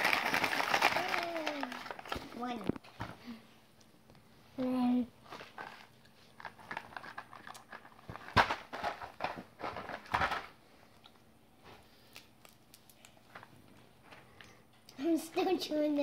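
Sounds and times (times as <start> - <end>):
candy wrapper crinkling: 0.0 - 2.8, 5.4 - 10.4.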